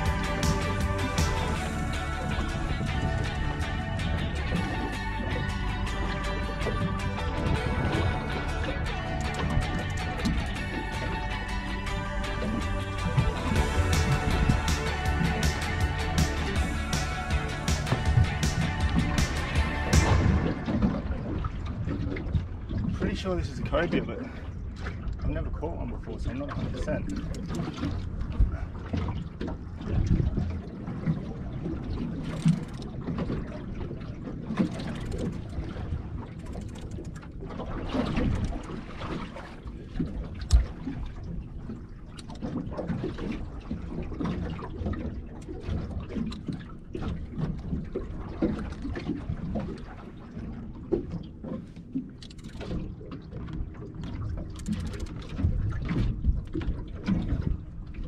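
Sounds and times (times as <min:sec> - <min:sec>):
water splashing against boat hull: 0:00.0 - 0:58.0.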